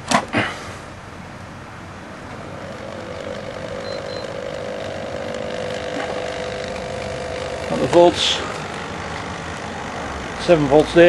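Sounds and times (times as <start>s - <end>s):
steady background noise: 0.0s - 11.0s
transformer humming: 1.4s - 11.0s.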